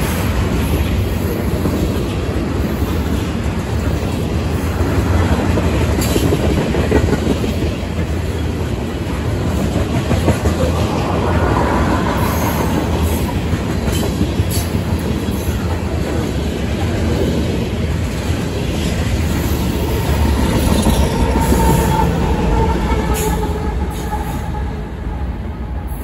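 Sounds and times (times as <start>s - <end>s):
freight train wheel rumble: 0.0s - 26.0s
train wheel squeal: 10.4s - 15.7s, 19.4s - 26.0s.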